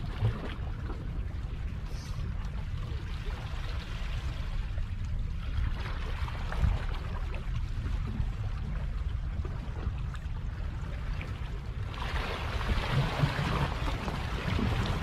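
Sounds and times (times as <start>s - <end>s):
steady low rumble: 0.0s - 15.0s
waves lapping against rocks: 9.2s - 15.0s.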